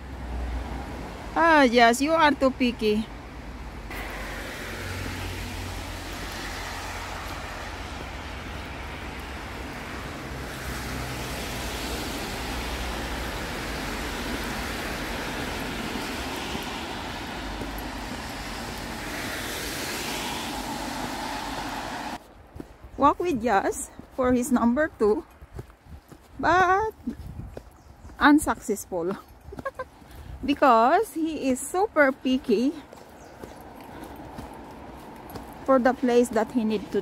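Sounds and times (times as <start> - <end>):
steady rushing noise: 3.4 - 22.6.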